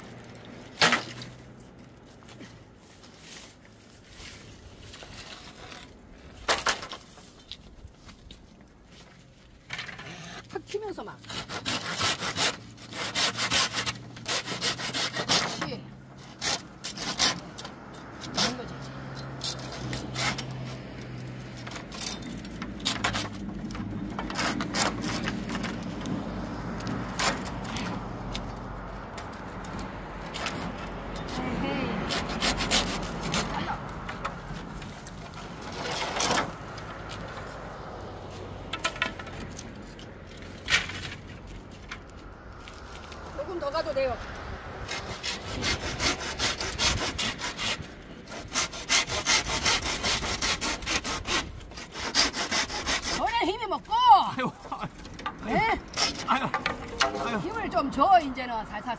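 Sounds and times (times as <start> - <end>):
hand saw cutting bamboo: 0.2 - 1.4, 10.0 - 26.2, 26.8 - 37.6, 38.7 - 41.3, 44.7 - 57.6.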